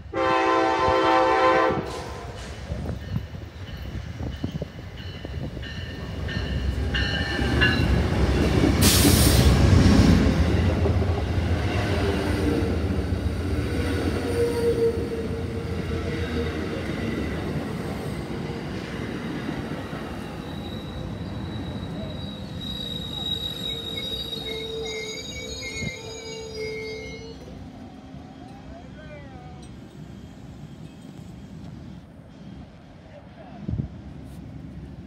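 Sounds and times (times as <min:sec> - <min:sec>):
diesel locomotive passing: 0:00.0 - 0:35.0
squealing train wheels: 0:10.2 - 0:32.8.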